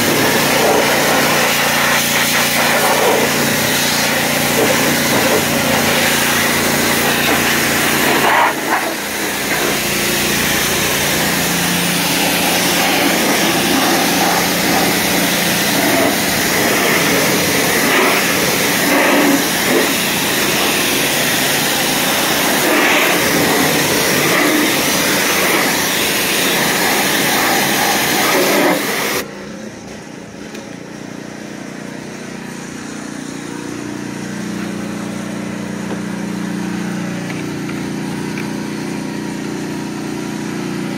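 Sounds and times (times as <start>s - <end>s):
pressure washer spraying hiss: 0.0s - 29.2s
pressure washer motor running: 0.0s - 40.9s.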